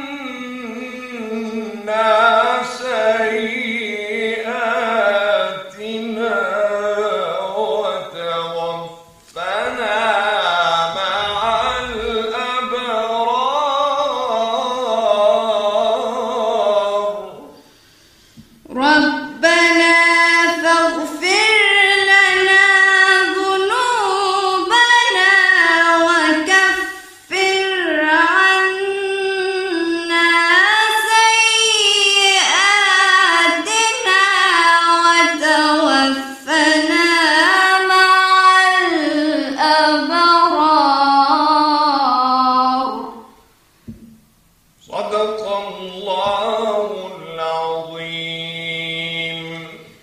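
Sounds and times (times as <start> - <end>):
woman reciting melodically: 0.0 - 12.8, 18.6 - 43.4.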